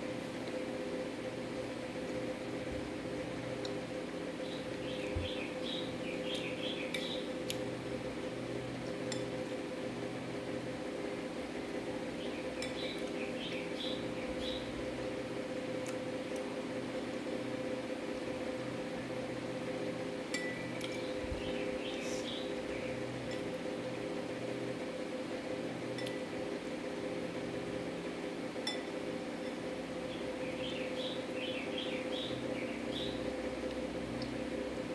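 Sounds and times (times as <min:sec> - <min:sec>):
steady mechanical hum: 0:00.0 - 0:34.9.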